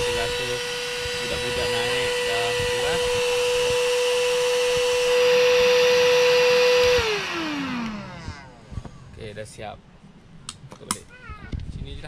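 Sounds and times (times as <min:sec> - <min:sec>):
electric air pump whining: 0:00.0 - 0:09.3.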